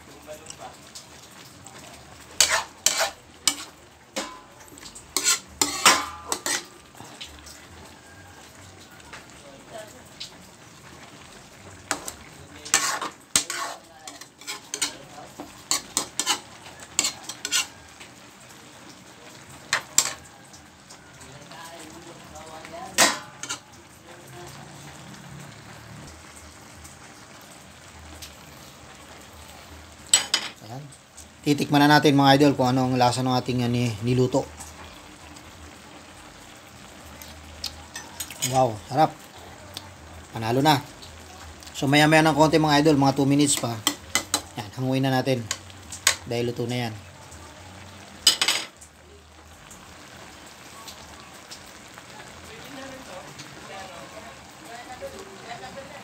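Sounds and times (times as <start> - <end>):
spoon clanking against pan: 2.4 - 6.7, 11.9 - 17.7, 19.7 - 20.2, 23.0 - 23.7, 30.1 - 30.6, 43.5 - 44.6, 48.2 - 48.7
metal spoon scraping a wok: 2.4 - 6.8, 11.9 - 17.8, 19.7 - 20.2, 23.0 - 23.7, 37.9 - 38.6
metal ladle knocking on pan: 4.2 - 4.5, 5.7 - 6.6.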